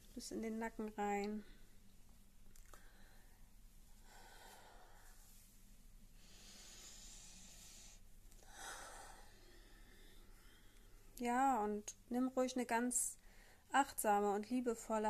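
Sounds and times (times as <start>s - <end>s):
woman breathing softly: 2.7s - 11.2s, 13.2s - 13.7s.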